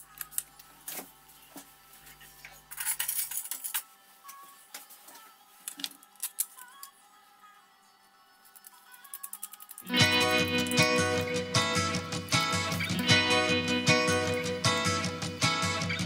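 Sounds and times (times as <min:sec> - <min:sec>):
quiet background music: 0:00.0 - 0:16.0
small parts clicking on a mat: 0:05.7 - 0:06.9, 0:08.4 - 0:09.9.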